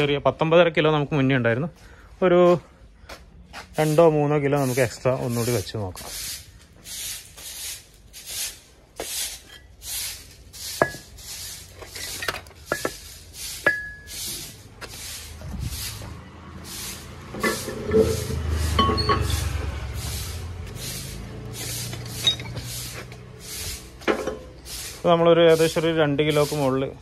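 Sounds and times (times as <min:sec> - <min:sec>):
scrap iron clanking: 0:10.7 - 0:15.0, 0:17.2 - 0:20.8, 0:21.5 - 0:25.0.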